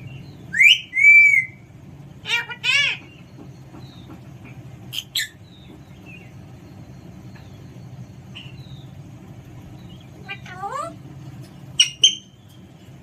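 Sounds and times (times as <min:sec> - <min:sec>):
parakeet calls: 0:00.1 - 0:04.2, 0:04.8 - 0:06.4, 0:07.4 - 0:12.6
faint bird chirps: 0:04.9 - 0:10.8.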